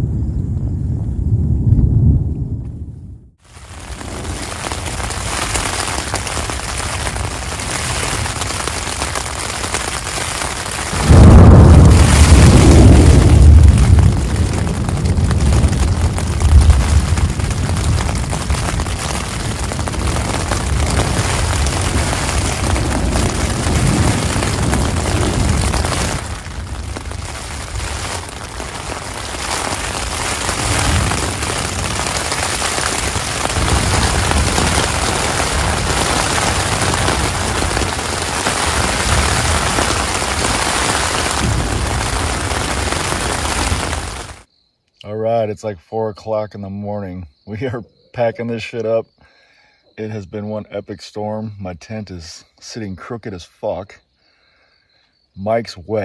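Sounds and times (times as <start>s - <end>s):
deep low rumble: 0.0s - 3.4s, 11.0s - 29.2s
heavy rain hiss: 3.4s - 44.5s.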